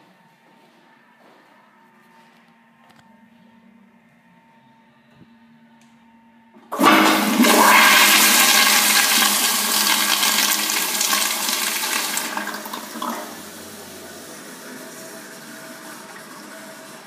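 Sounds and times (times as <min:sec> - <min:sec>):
toilet flushing whoosh: 0:06.7 - 0:17.0.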